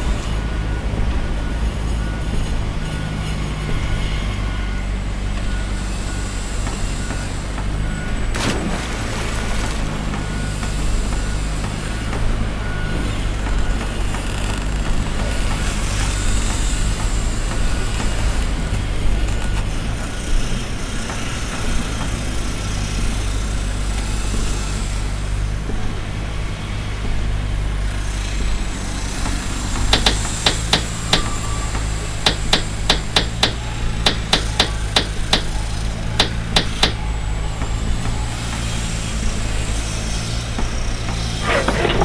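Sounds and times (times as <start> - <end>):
hammer striking nails: 32.3 - 35.5, 36.2 - 37.0.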